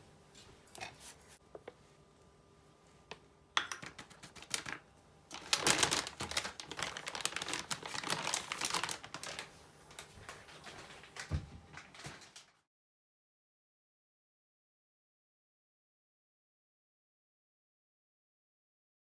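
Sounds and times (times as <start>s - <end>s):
plastic bag crinkling: 3.8s - 12.6s.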